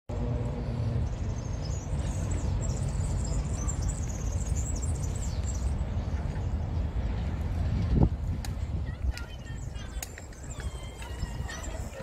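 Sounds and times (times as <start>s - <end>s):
steady low rumble: 0.1s - 12.0s
small birds chirping: 0.6s - 7.5s, 8.6s - 12.0s.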